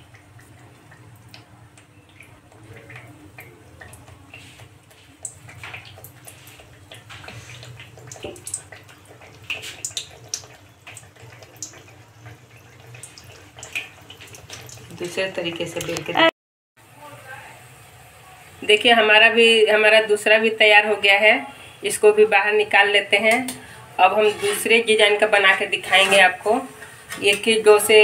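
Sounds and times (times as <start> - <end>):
oil crackling and popping: 0.0 - 16.3
dough deep-frying in oil: 0.0 - 28.0.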